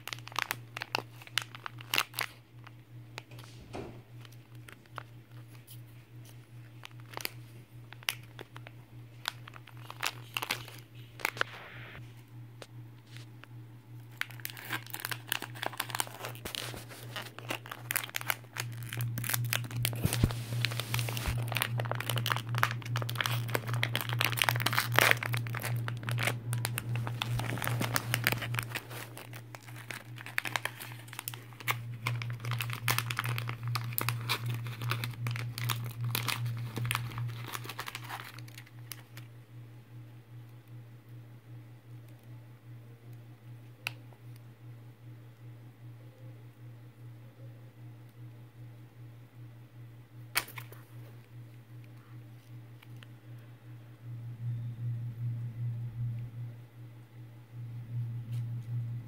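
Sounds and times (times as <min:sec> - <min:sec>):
plastic wrapper crinkling and tearing: 0:00.0 - 0:12.0, 0:13.0 - 0:39.3, 0:50.3 - 0:51.2
low hum: 0:00.0 - 0:59.0.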